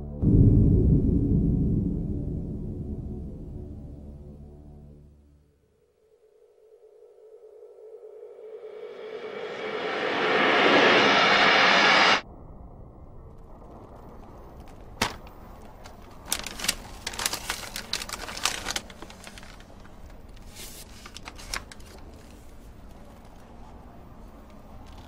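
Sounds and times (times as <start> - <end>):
loud rushing noise: 8.5 - 12.2
paper bag crinkling: 14.6 - 22.4.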